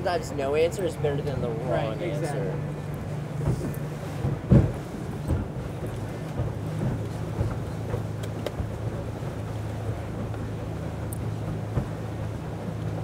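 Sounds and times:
boat engine droning: 0:00.0 - 0:13.0
water rushing past hull: 0:00.0 - 0:13.0
wind on microphone: 0:02.4 - 0:13.0.

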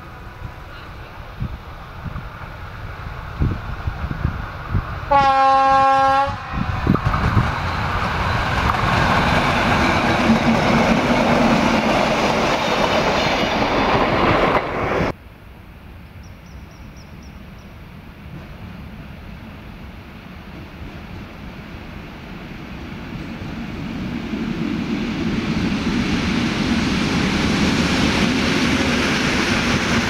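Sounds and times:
train wheels rushing on rails: 0:00.0 - 0:15.2, 0:16.5 - 0:30.0
open-air background: 0:00.0 - 0:30.0
locomotive horn: 0:05.1 - 0:06.8.

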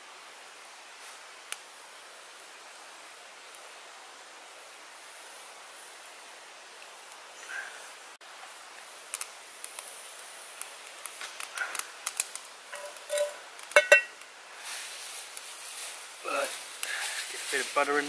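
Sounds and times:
wood crackling and hissing: 0:00.0 - 0:18.0
metallic clank of frying pan: 0:12.8 - 0:14.1.

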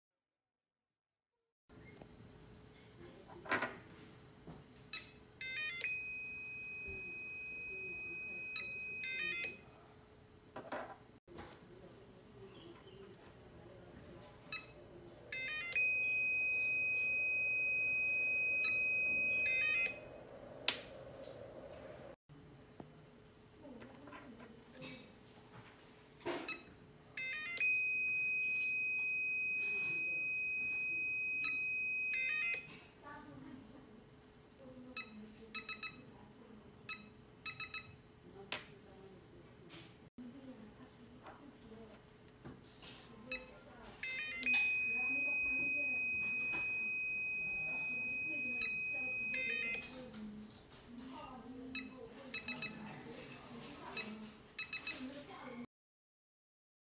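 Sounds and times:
electronic buzzer beeps: 0:04.9 - 0:09.7, 0:14.5 - 0:20.1, 0:26.5 - 0:32.7, 0:36.9 - 0:38.0, 0:43.3 - 0:49.9, 0:51.8 - 0:52.8, 0:54.0 - 0:55.0
long high beep: 0:05.8 - 0:09.6, 0:15.6 - 0:20.1, 0:27.5 - 0:32.6, 0:44.4 - 0:49.8.

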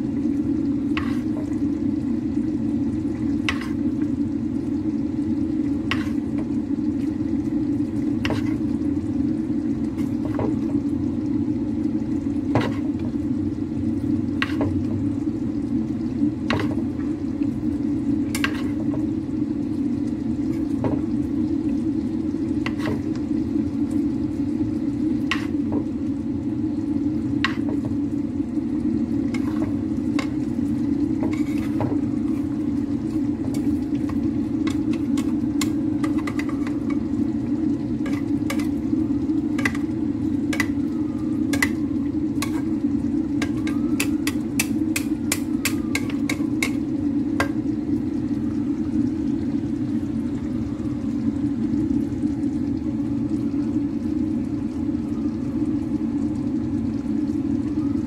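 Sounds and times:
spatula knocking against pan: 0:12.5 - 0:12.8, 0:33.5 - 0:37.0, 0:40.5 - 0:40.8, 0:41.5 - 0:41.8, 0:42.4 - 0:42.6, 0:43.4 - 0:46.8.

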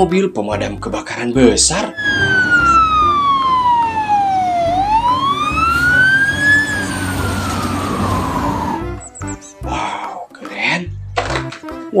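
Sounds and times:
fire engine siren wailing: 0:01.9 - 0:09.1
engine noise: 0:02.0 - 0:09.0.

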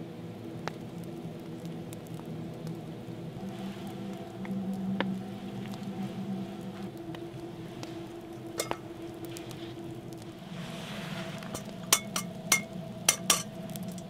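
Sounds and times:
metal cookware clinking: 0:08.6 - 0:08.8, 0:11.6 - 0:13.5.

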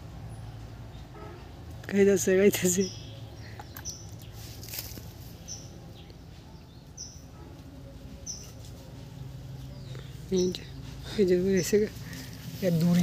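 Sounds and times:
bird chirping: 0:02.5 - 0:04.6
faint rustles: 0:03.5 - 0:06.6, 0:07.3 - 0:13.0.

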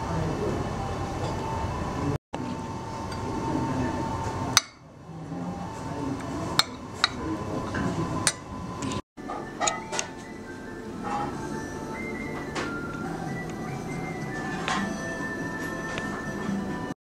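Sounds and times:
low room murmur: 0:00.0 - 0:09.0
spoon clinking on plate: 0:09.3 - 0:10.1.

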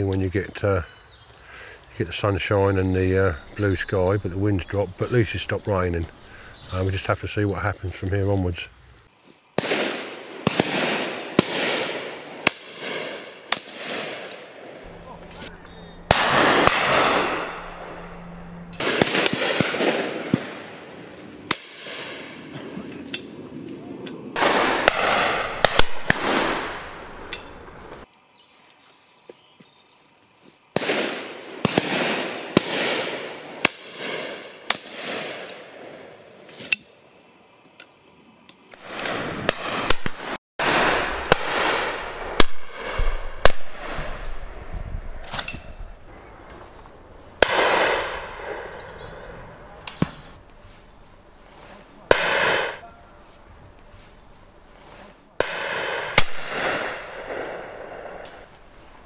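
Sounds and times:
shotgun shots echoing: 0:09.6 - 0:22.5, 0:24.4 - 0:28.0, 0:30.8 - 0:36.1, 0:38.8 - 0:46.7, 0:47.4 - 0:50.4, 0:52.0 - 0:52.9, 0:55.4 - 0:58.6.

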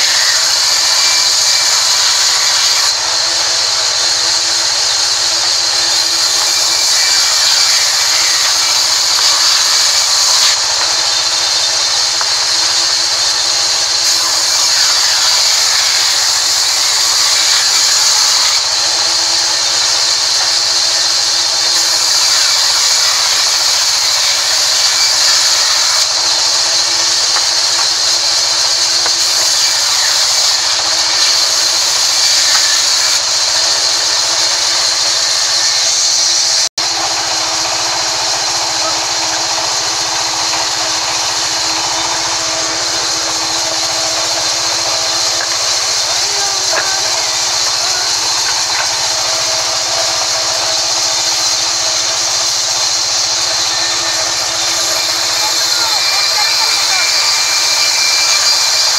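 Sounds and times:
band saw cutting wood: 0:00.0 - 0:58.9
machine hum: 0:00.0 - 0:58.9.

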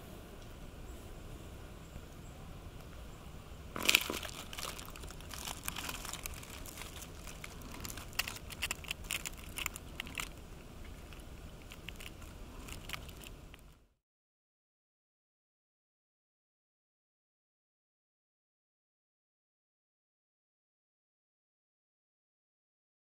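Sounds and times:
low background rumble: 0:00.0 - 0:13.9
leaf litter crackling and crunching: 0:03.8 - 0:13.7.

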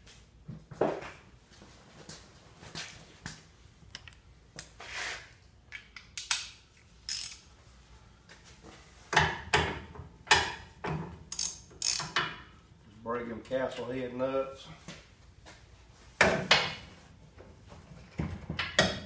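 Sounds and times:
hand ratchet clicking: 0:07.1 - 0:07.4, 0:11.3 - 0:12.2.

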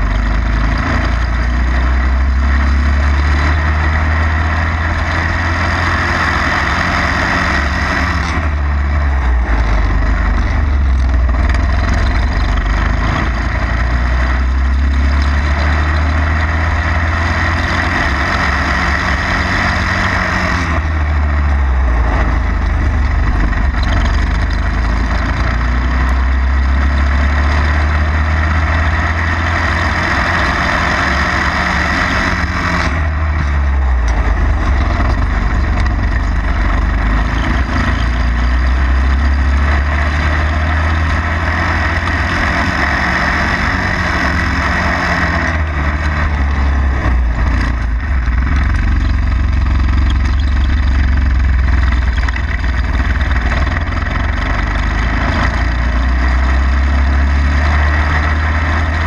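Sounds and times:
go-kart engine: 0:00.0 - 0:59.0.

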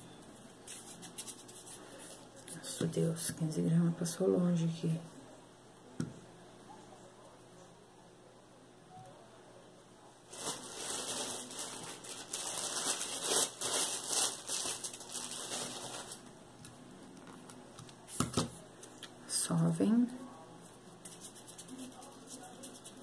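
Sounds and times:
plastic bag crinkling: 0:10.3 - 0:16.3.

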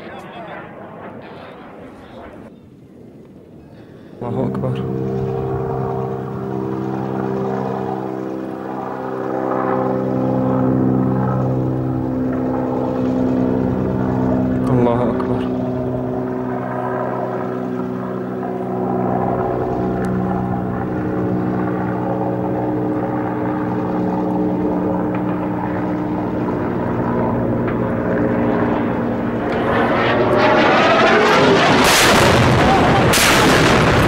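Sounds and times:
helicopter droning: 0:00.0 - 0:34.0
bomb blast: 0:29.5 - 0:34.0.

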